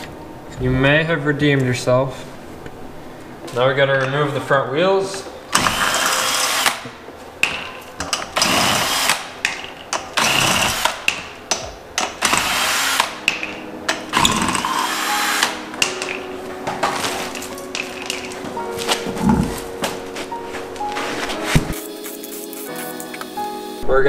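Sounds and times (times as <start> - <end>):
cordless drill spinning lug nuts: 5.5 - 6.8, 10.2 - 11.2, 12.2 - 13.2, 14.1 - 15.6.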